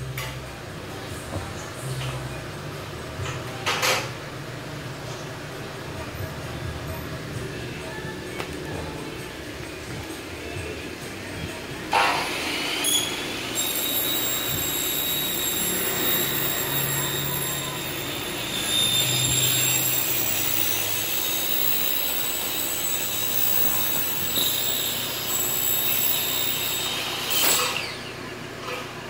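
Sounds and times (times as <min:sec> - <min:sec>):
miter saw whining: 0:11.9 - 0:28.4.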